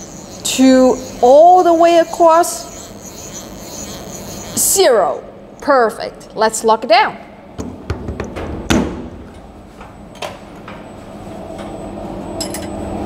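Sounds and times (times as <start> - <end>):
machine hum: 0.0 - 6.5.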